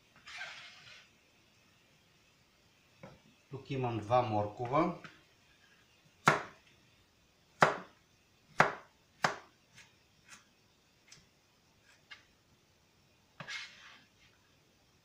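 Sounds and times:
knife chopping on cutting board: 6.2s - 6.5s, 7.6s - 7.9s, 8.6s - 9.5s.

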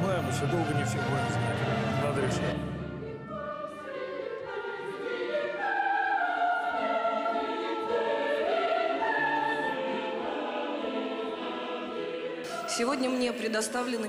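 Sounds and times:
choir singing held notes: 0.0s - 14.0s.

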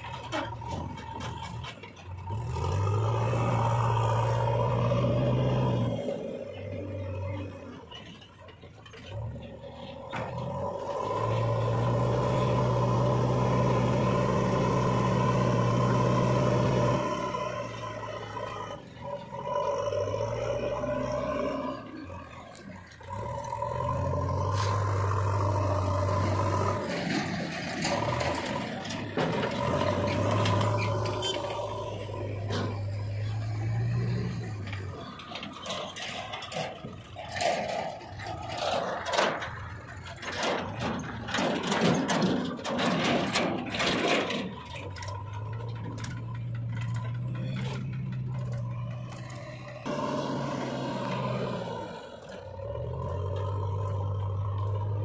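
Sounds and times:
diesel engines running: 0.0s - 55.0s
soil clattering and scraping: 7.9s - 49.9s.

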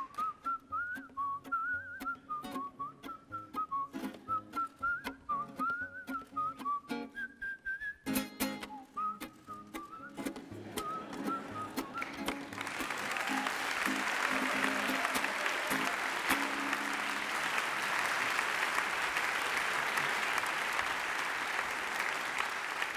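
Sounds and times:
plucked lute notes: 0.0s - 7.3s, 8.1s - 12.6s
whistled tune: 0.0s - 17.2s
audience applause: 10.5s - 22.9s.

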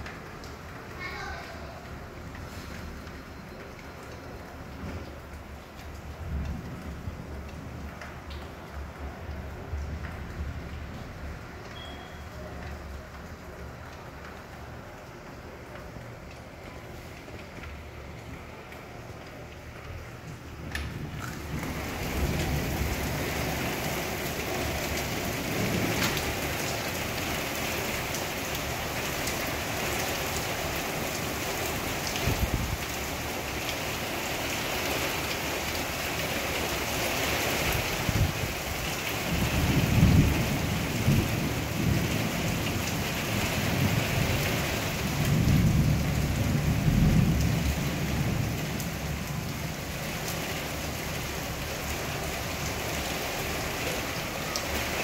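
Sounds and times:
heavy rain pouring: 0.0s - 55.0s
rolling thunder: 20.6s - 26.7s, 39.2s - 49.9s.

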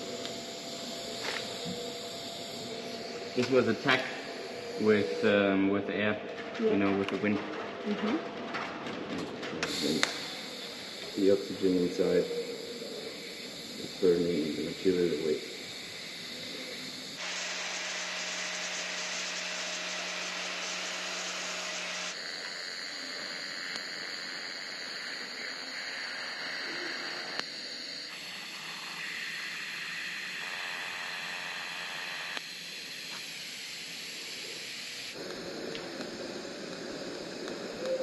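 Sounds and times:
welding torch hissing: 0.0s - 6.0s, 9.6s - 38.0s.

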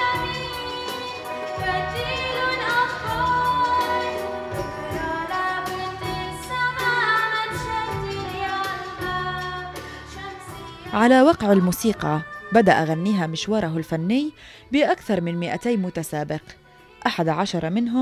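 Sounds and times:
live band with steady beat: 0.0s - 11.7s
girl singing into microphone: 0.0s - 17.1s.

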